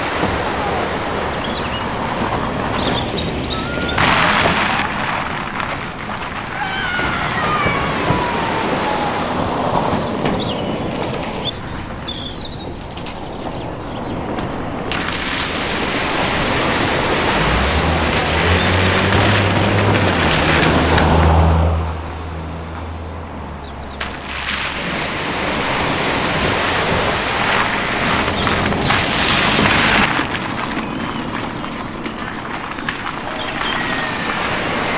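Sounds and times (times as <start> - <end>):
running water: 0.0 - 34.9
water splashing around tyres: 0.0 - 34.9
car engine running: 13.5 - 33.6.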